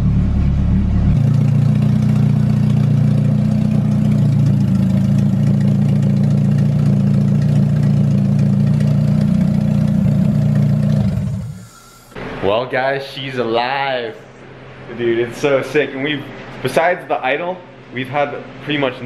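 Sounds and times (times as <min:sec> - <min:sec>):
car engine idling: 0:00.0 - 0:12.2.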